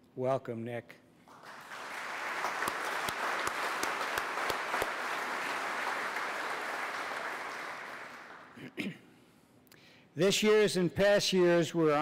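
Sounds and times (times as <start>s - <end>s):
crowd applause: 1.3s - 8.6s
nearby sharp hand claps: 1.8s - 8.5s.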